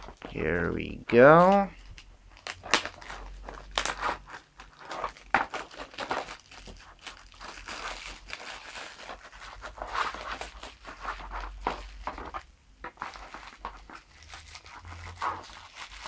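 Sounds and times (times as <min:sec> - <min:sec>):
plastic wrap crinkling: 0:00.0 - 0:00.4, 0:01.4 - 0:16.0.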